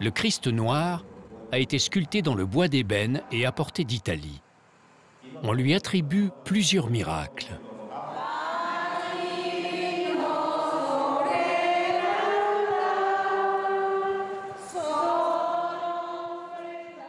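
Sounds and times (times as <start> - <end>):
choir singing long held notes: 7.9 - 17.0.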